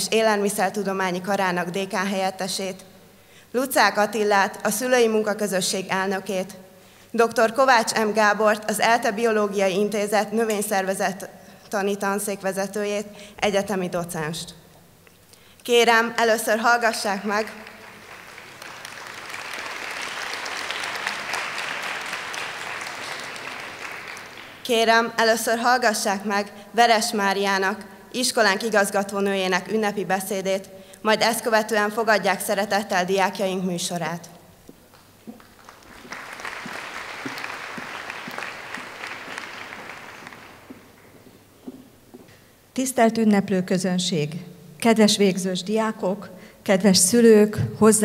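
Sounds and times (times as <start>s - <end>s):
audience applauding: 17.3s - 24.7s, 35.3s - 41.2s.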